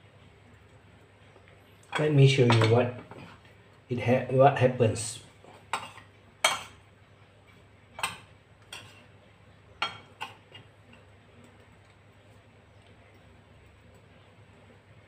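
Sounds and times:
clinks on a ceramic plate: 1.9 - 2.8, 9.8 - 10.4.

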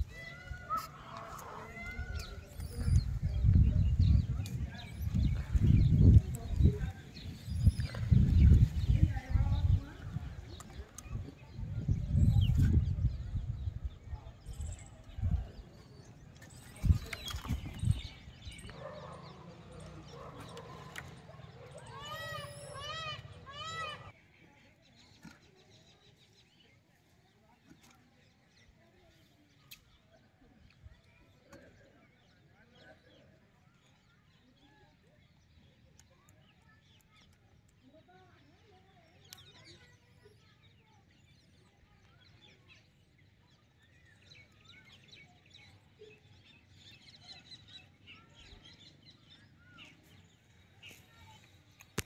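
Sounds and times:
small birds chirping: 0.0 - 52.0.

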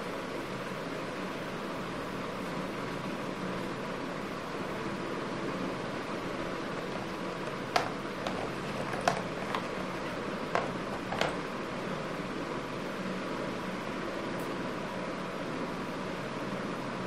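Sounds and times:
paintbrush tapping on paper: 7.4 - 9.8, 10.5 - 11.4.

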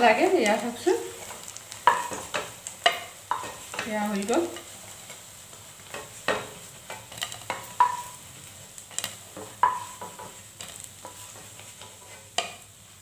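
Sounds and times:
faint frying sizzle: 0.0 - 13.0
spatula knocking against pan: 1.8 - 3.9, 5.9 - 8.2, 9.3 - 10.4.

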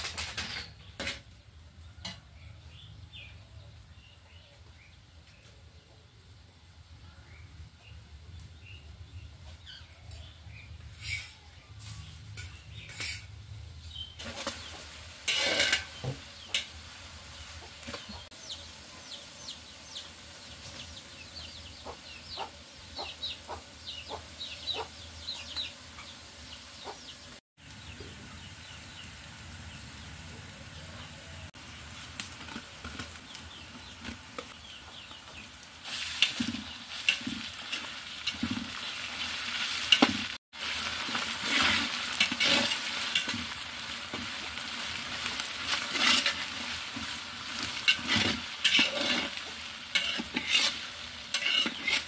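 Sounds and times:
onions frying in hot oil: 0.0 - 52.0
birds chirping and clucking: 7.8 - 31.5, 32.2 - 40.4, 41.5 - 52.0
spatula stirring in a pot: 14.2 - 16.7, 41.0 - 44.4, 45.6 - 52.0.

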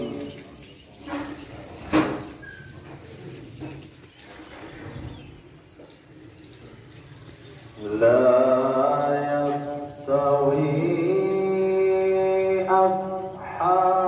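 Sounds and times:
water running from taps: 0.0 - 7.9.

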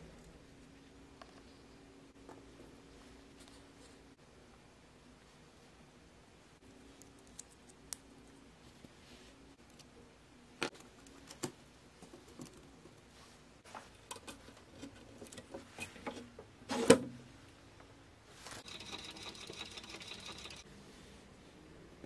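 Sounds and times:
rapid buzzing rattle: 18.6 - 20.6.

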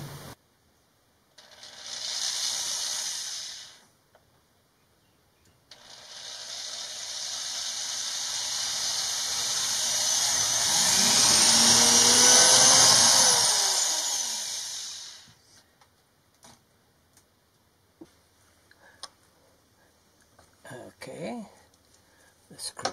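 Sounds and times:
electric drill whining: 1.4 - 3.8, 5.7 - 15.4.

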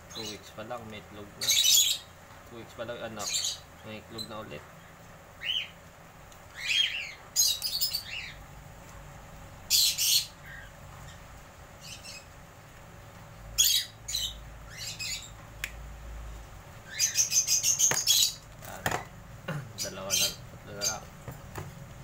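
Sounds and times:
harsh chattering bird calls: 0.0 - 5.8, 6.4 - 8.5, 9.7 - 12.4, 13.6 - 15.4, 16.7 - 19.0, 19.6 - 21.3
cockatiels chirping and squawking: 1.4 - 2.1, 5.4 - 5.8, 6.5 - 8.4, 9.7 - 11.2, 13.6 - 15.4, 16.9 - 18.4, 19.8 - 21.1.

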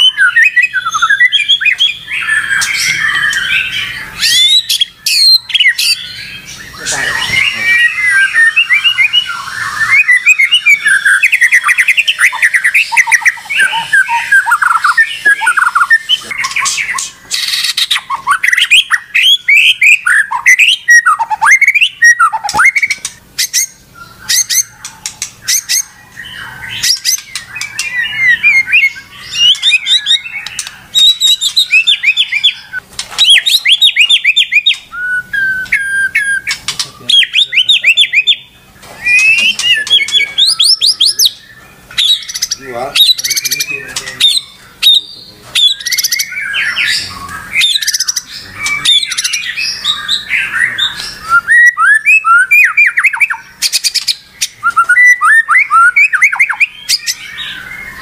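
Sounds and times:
bird song with whistles and trills: 0.0 - 58.0.

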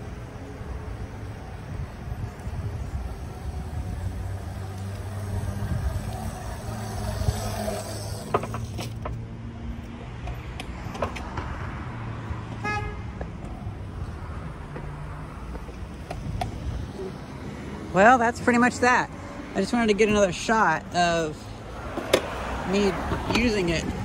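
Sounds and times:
electric scooter riding past: 0.0 - 9.6
low street traffic hum: 0.0 - 24.0.

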